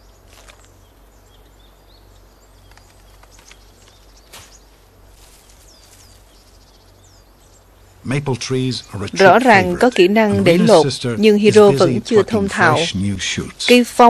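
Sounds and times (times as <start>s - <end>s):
small bird chirping: 0.0s - 11.7s
twigs snapping and rustling: 0.3s - 0.8s, 2.6s - 6.4s.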